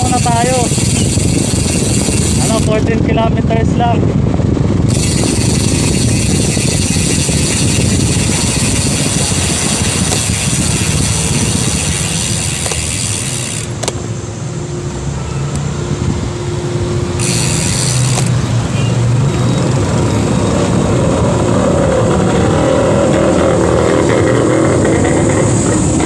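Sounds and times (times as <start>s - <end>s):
wind rumble on microphone: 0.0s - 14.5s, 15.4s - 26.0s
motorcycle engines running: 0.0s - 26.0s
steady hum: 4.6s - 18.6s.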